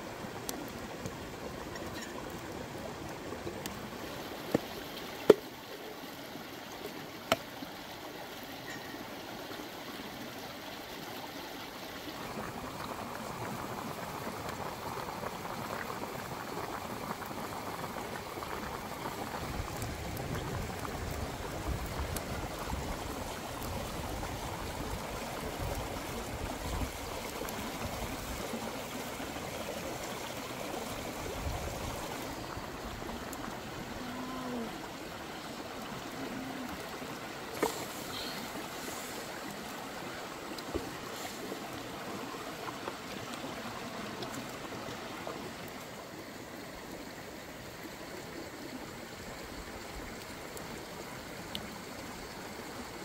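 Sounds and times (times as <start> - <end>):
pot boiling and bubbling: 0.0 - 53.0
stream rushing: 0.0 - 53.0
wood fire crackling: 12.2 - 34.2.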